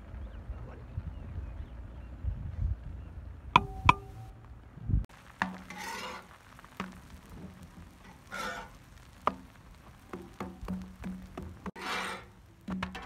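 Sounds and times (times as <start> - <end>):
spatula knocking on pot rim: 3.6 - 4.2
spatula scraping a griddle: 5.4 - 9.4, 11.1 - 13.0.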